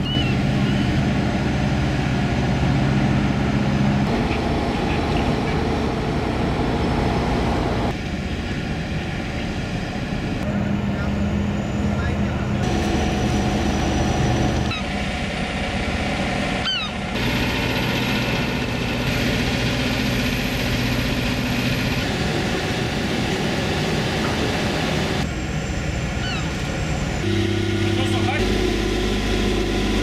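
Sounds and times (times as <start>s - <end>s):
diesel boat engines droning: 0.0s - 30.0s.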